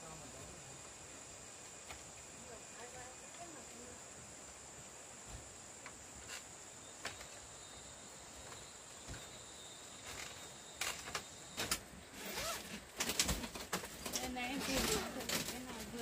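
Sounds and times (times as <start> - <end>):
high insect drone: 0.0 - 16.0
footsteps on bamboo stairs: 8.3 - 16.0.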